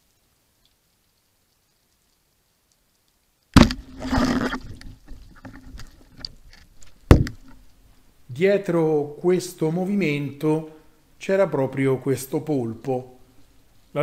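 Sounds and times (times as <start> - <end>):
rushing water: 0.0 - 14.0
underwater speargun crack: 3.6 - 7.6.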